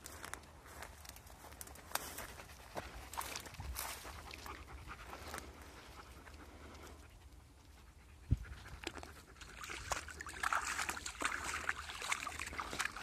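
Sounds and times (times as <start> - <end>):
paws rustling through brush: 0.0 - 9.3
dog panting: 4.1 - 9.5.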